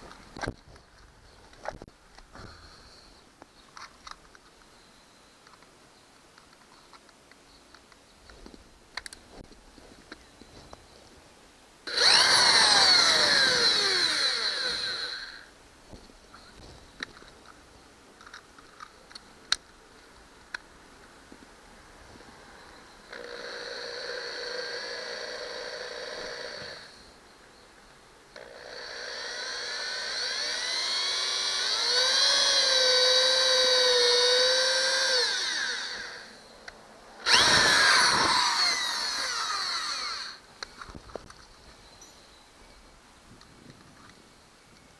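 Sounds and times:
cordless drill whining: 11.9s - 15.5s, 23.1s - 27.0s, 28.4s - 36.4s, 37.2s - 40.4s.

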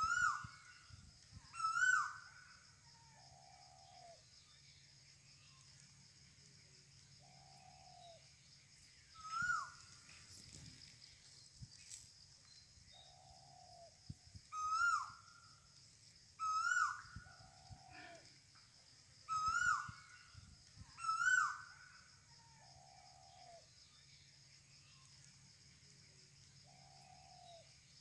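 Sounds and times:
soft low bird calls: 0.0s - 4.7s, 7.2s - 15.6s, 16.4s - 23.8s
loud clear bird calls: 0.0s - 5.8s, 7.2s - 15.7s, 16.4s - 25.2s, 26.6s - 28.0s.

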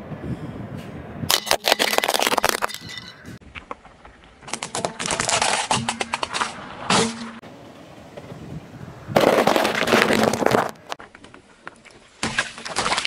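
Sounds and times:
tyre crushing brittle objects: 1.3s - 3.0s, 4.4s - 7.2s, 9.2s - 11.0s.

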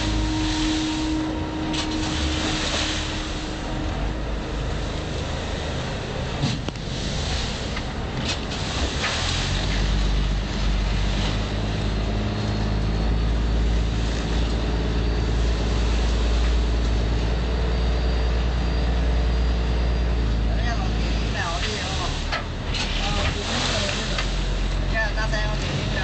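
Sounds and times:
short splashes: 0.0s - 12.0s, 21.6s - 24.9s
boat engine humming: 0.0s - 26.0s
wind and water rushing: 0.0s - 26.0s.

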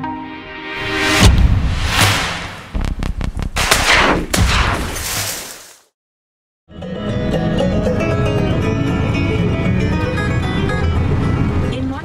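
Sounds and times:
whoosh: 0.4s - 4.8s
sharp cracks like gunfire: 2.0s - 5.4s
background music: 6.7s - 12.0s.

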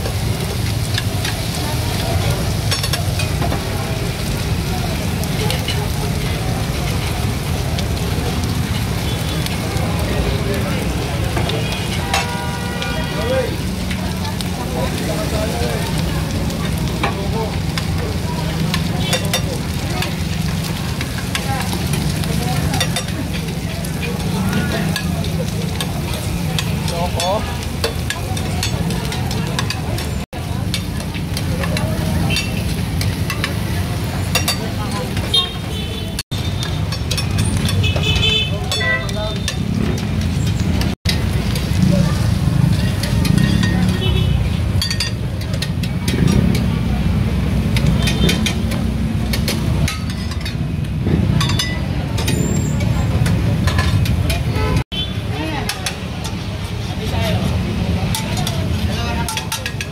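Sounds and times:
meat sizzling: 0.0s - 59.9s
metal spatula scraping hot plate: 42.7s - 43.9s.

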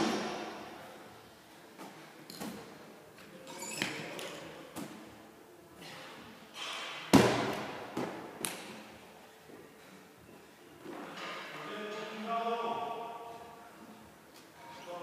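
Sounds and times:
ball thudding on gym floor: 7.1s - 8.6s.

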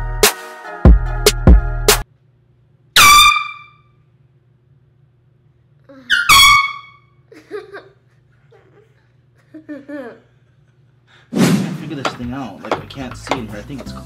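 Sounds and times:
air horn blasts: 3.0s - 4.0s, 6.1s - 7.1s.

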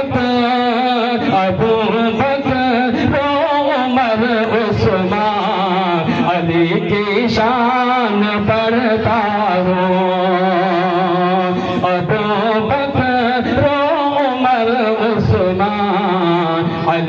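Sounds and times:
man singing into microphone: 0.0s - 17.0s.

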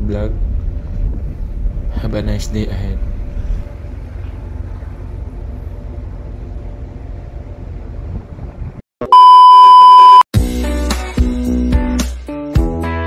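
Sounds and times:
ship engine rumble: 0.0s - 8.8s
wind buffeting microphone: 7.4s - 8.8s
electronic beep: 9.0s - 10.2s.

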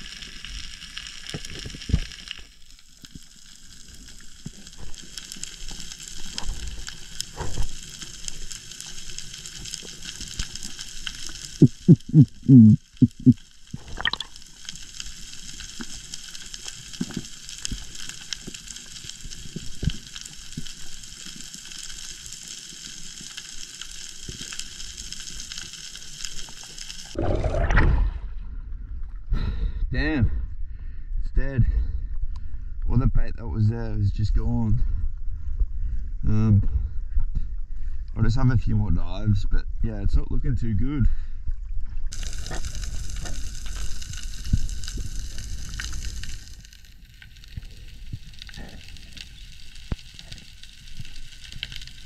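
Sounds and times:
underwater crackling hiss: 0.0s - 27.8s, 42.1s - 52.0s.

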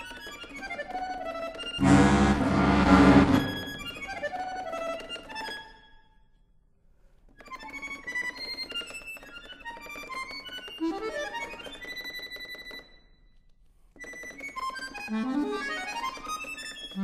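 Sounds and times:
solo accordion playing: 1.8s - 5.0s, 15.0s - 16.2s.

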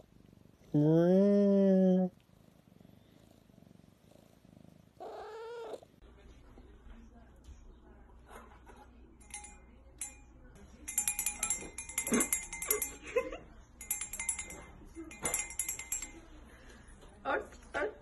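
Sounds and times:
small metal bell jingling: 9.2s - 16.8s.

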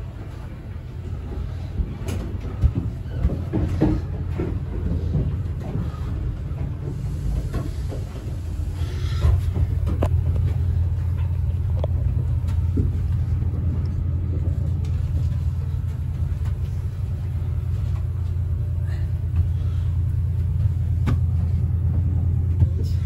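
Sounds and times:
train coach rumbling on rails: 0.0s - 23.0s.

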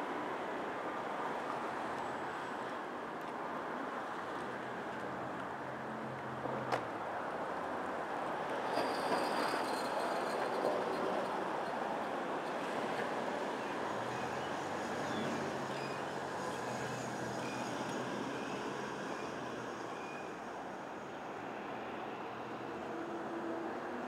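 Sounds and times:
city street traffic: 0.0s - 24.0s
thin high squeal: 8.7s - 10.8s, 15.7s - 18.6s.

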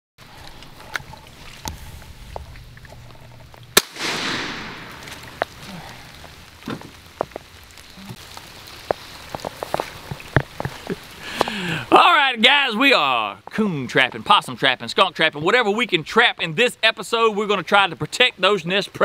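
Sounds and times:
sharp bang with echo: 3.8s - 5.2s.

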